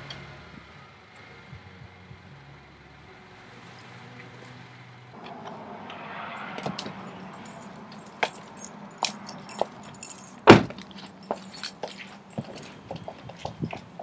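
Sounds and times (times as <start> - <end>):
low engine hum: 0.0 - 14.0
high heels clicking on concrete: 6.6 - 14.0
car door shutting: 10.4 - 10.9.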